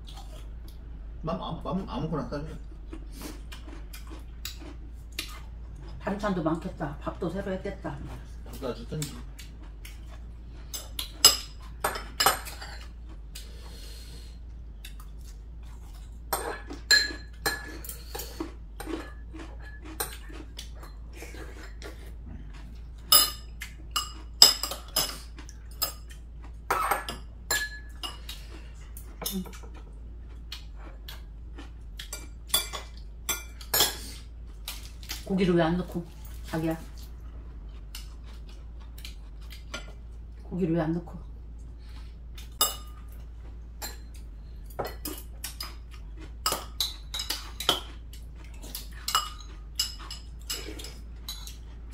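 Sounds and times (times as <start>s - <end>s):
cutlery clinking on ceramic bowls: 10.7s - 12.9s, 16.3s - 18.0s, 23.1s - 28.3s, 32.0s - 34.0s, 42.6s - 43.1s, 48.8s - 51.6s.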